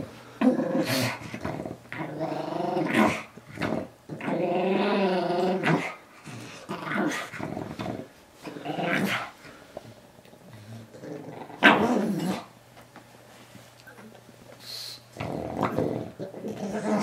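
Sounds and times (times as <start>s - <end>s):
dog growling in play: 0.4s - 9.4s, 10.3s - 12.5s, 15.1s - 17.0s.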